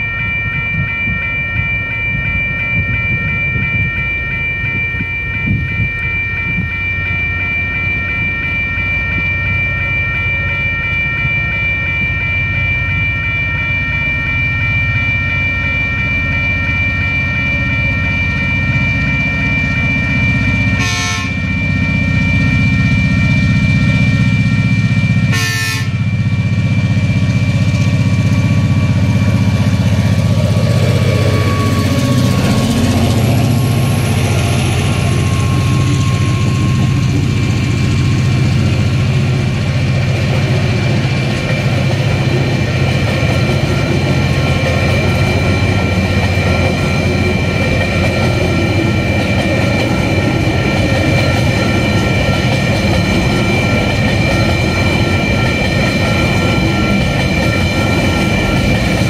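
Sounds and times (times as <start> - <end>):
diesel locomotive rumble: 0.0 - 59.0
level crossing bells: 0.0 - 59.0.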